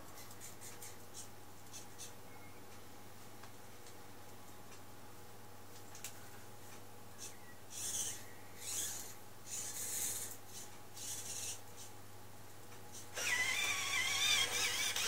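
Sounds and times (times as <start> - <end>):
servo motors whirring: 13.2 - 15.0.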